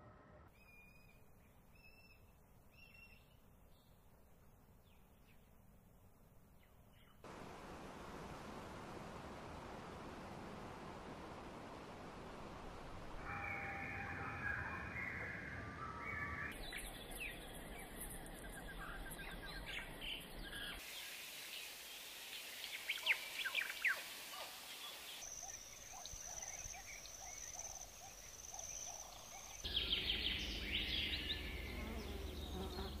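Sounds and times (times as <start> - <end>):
birds chirping and calling: 25.4 - 33.0
insect buzzing: 29.7 - 33.0.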